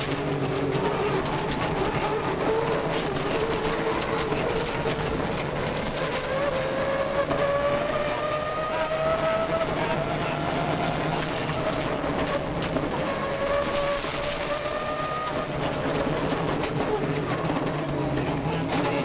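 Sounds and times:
sharp clicks from road: 0.0s - 8.3s, 9.7s - 19.0s
rally car engine under load: 0.0s - 19.0s.

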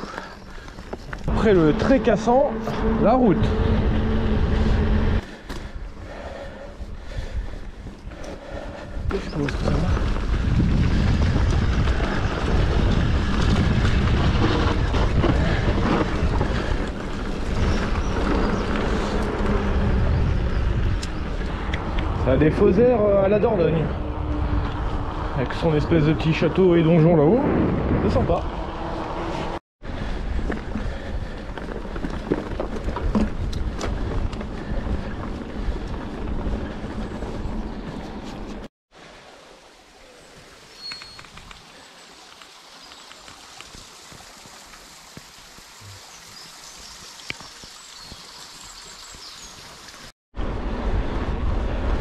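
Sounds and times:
bike tyres on dirt and stone: 0.0s - 38.7s, 40.2s - 52.0s
wind rumbling on microphone: 0.0s - 38.7s, 50.4s - 52.0s
bike rattling and clicking: 9.2s - 22.4s, 30.0s - 38.7s.

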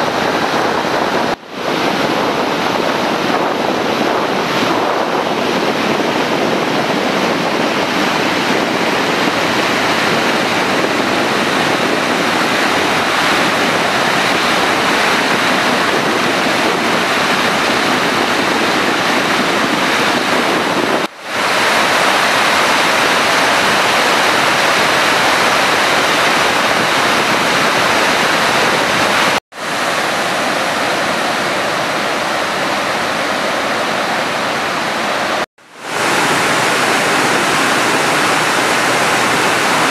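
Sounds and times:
water rushing over spillway: 0.0s - 39.9s.

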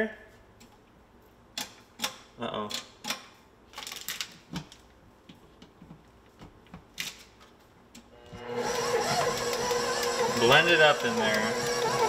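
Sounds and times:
stand mixer motor running: 8.3s - 12.0s.

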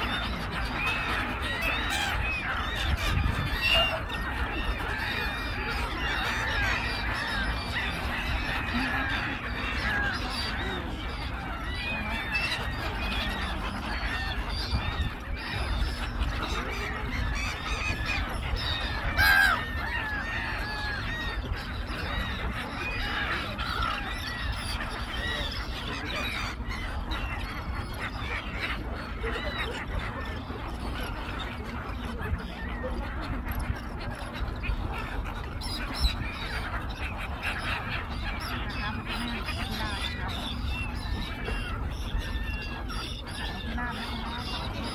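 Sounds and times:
gulls squawking: 0.0s - 44.9s.

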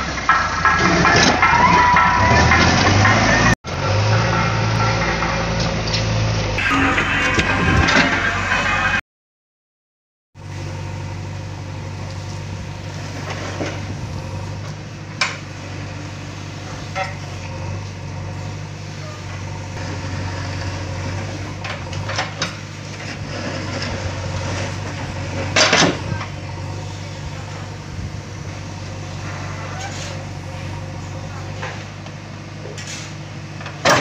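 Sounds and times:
diesel engine running: 0.0s - 9.0s, 10.4s - 34.0s
backhoe digging into soil: 12.9s - 32.0s, 32.6s - 34.0s.

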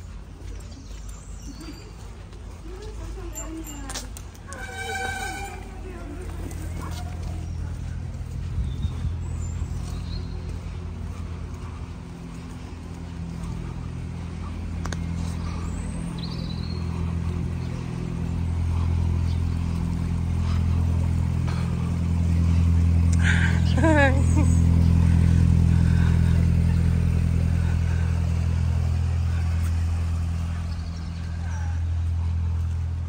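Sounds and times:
low engine hum: 0.0s - 33.0s.

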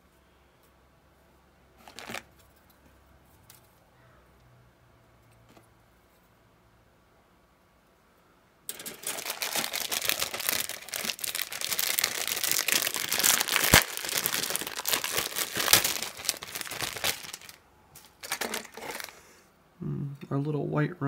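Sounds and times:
plastic bag crinkling: 1.8s - 2.4s, 8.7s - 19.3s.

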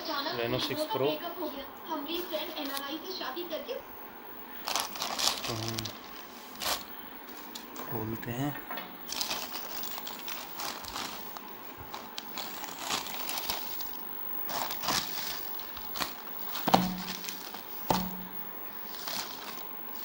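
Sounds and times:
plastic bag crinkling: 4.5s - 8.1s, 9.0s - 20.0s
sharp knocks: 16.7s - 18.5s.

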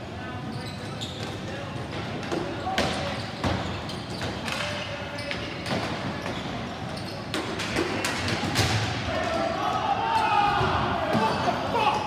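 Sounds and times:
hockey sticks clacking on ball: 1.2s - 6.4s, 7.3s - 9.4s.

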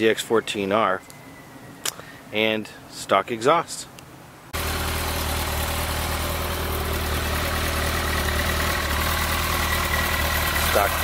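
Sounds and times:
motorcycle engine idling: 4.6s - 11.0s.

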